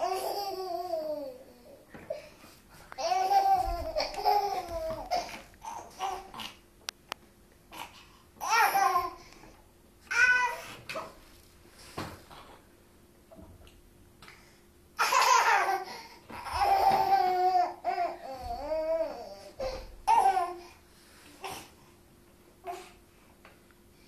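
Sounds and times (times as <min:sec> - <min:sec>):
toddler babbling: 0:10.1 - 0:10.7, 0:15.0 - 0:20.7
toddler laughing: 0:15.0 - 0:20.6.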